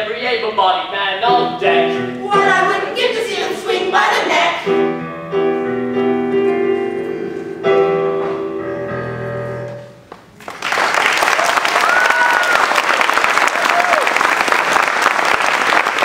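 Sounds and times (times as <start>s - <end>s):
voices singing: 1.2s - 4.8s
piano accompaniment: 1.2s - 10.4s.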